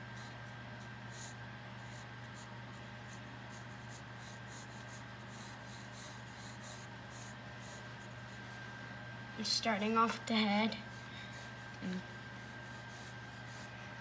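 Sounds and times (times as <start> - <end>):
faint steady hum: 0.0 - 14.0
pencil scratching on paper: 1.1 - 8.5, 10.9 - 13.8.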